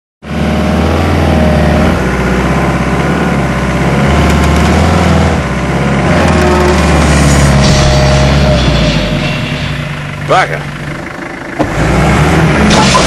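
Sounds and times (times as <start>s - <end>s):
truck engine running: 0.2s - 13.0s.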